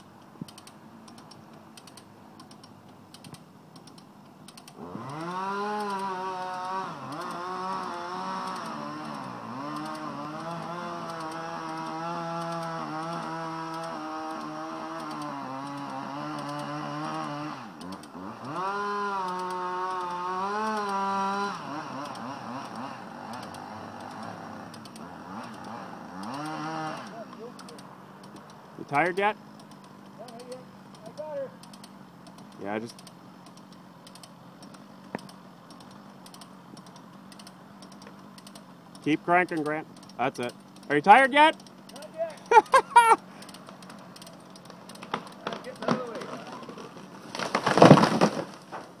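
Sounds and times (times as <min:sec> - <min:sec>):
chainsaw cutting wood: 0:00.0 - 0:49.0
light rapid clicking: 0:00.4 - 0:04.8.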